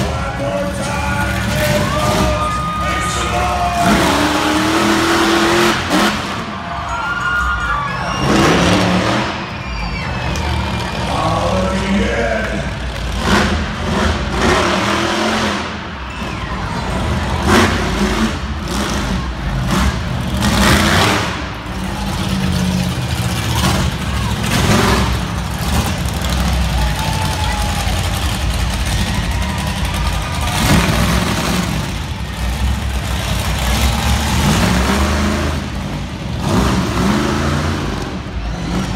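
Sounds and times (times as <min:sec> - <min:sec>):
monster truck engine revving: 0:00.0 - 0:38.9
truck crashing onto cars: 0:27.9 - 0:35.5.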